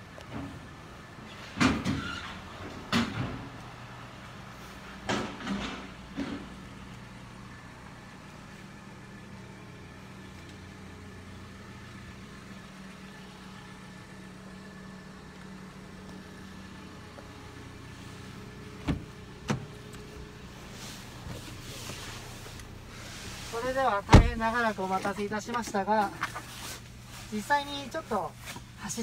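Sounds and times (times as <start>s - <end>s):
car engine idling: 2.4s - 29.0s
rustling: 19.7s - 29.0s.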